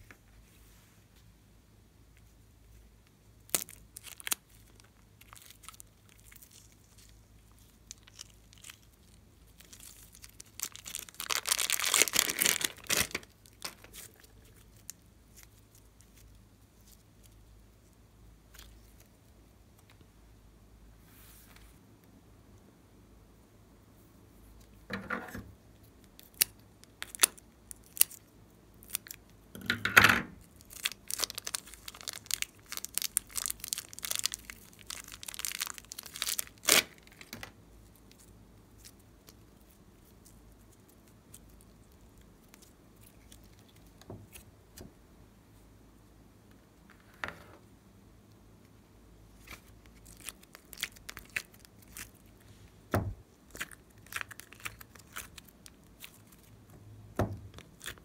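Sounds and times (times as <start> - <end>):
soft thump: 52.9 - 53.2
slime wet crackles and pops: 53.5 - 56.5.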